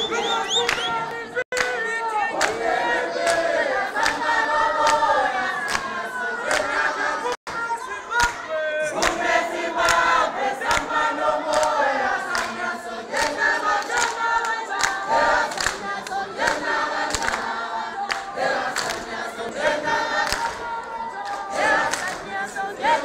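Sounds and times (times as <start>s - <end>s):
choir singing: 0.0s - 23.0s.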